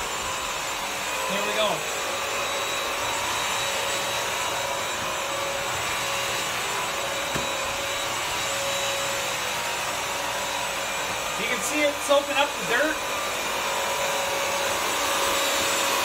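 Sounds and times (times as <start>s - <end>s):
vacuum motor whine and suction: 0.0s - 16.0s.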